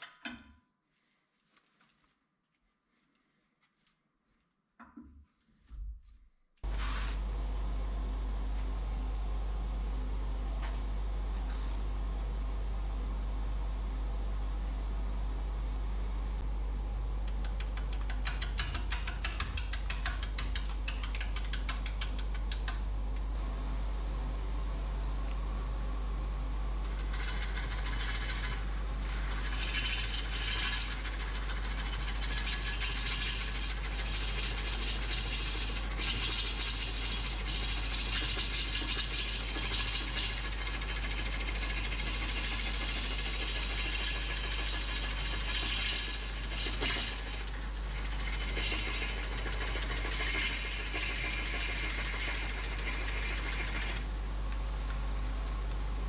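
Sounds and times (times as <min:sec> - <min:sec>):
lathe humming: 0:26.9 - 0:54.0.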